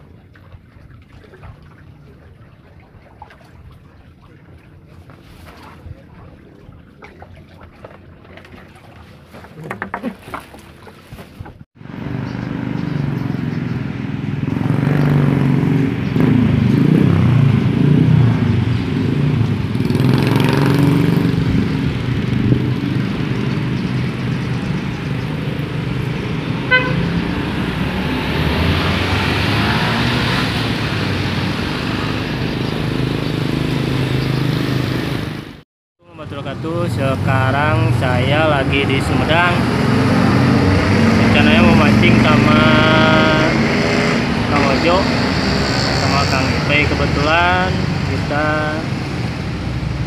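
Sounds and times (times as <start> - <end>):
motorcycle engines passing: 11.8 - 35.6, 36.2 - 50.0
short horn beep: 26.7 - 27.1.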